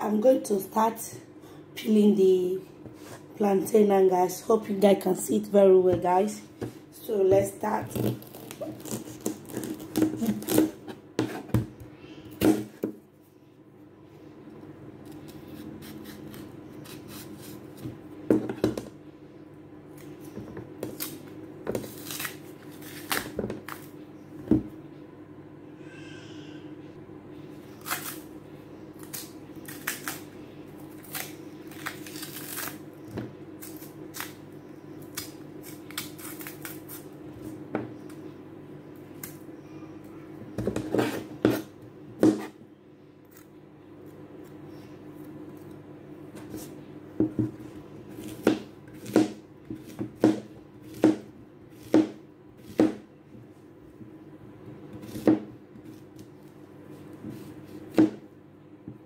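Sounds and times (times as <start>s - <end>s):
steady low hum: 0.0s - 59.0s
knife scraping plantain peel: 7.6s - 11.5s, 15.0s - 18.0s, 20.0s - 23.9s, 27.6s - 28.3s, 29.0s - 30.3s, 30.9s - 38.2s, 40.7s - 42.6s, 46.4s - 46.8s, 47.5s - 53.0s.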